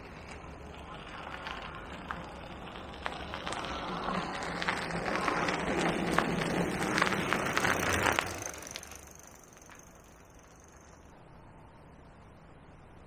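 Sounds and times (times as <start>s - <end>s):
bike tyres crackling over dirt: 0.0s - 11.1s.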